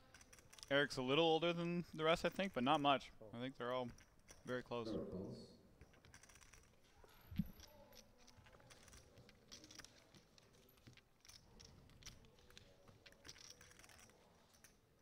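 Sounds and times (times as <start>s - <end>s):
poker chips clicking: 0.0s - 0.7s, 5.9s - 6.8s, 7.4s - 14.8s.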